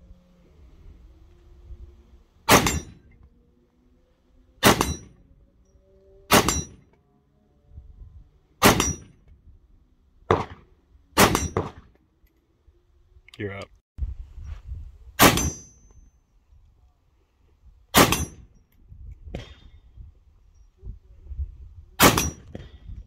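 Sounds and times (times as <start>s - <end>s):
rifle gunshots: 2.5s - 3.0s, 4.6s - 5.1s, 6.3s - 6.8s, 8.6s - 9.0s, 10.3s - 10.6s, 11.2s - 11.9s, 15.2s - 15.6s, 17.9s - 18.4s, 22.0s - 22.8s.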